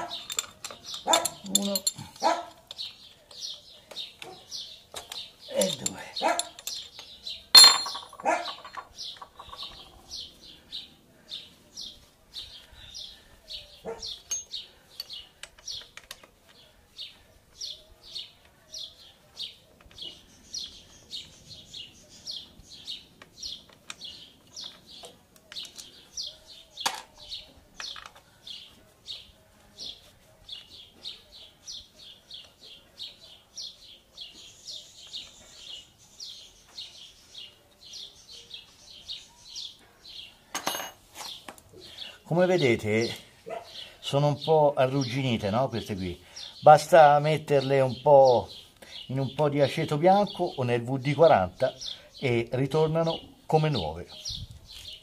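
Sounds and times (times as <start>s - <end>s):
bird chirping: 0.0s - 40.5s, 41.2s - 55.0s
metal tool clink: 0.1s - 2.9s, 5.6s - 9.8s, 14.2s - 15.2s, 40.5s - 41.0s.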